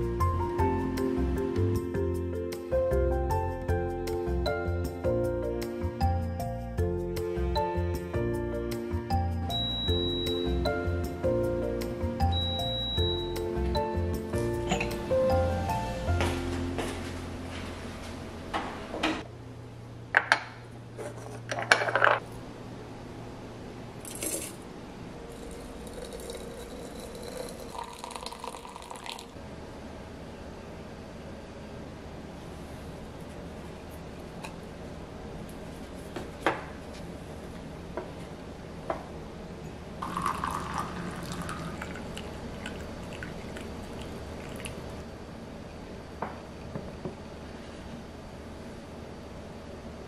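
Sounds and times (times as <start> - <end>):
hot water pouring into teapot: 25.3 - 29.4, 40.0 - 45.0.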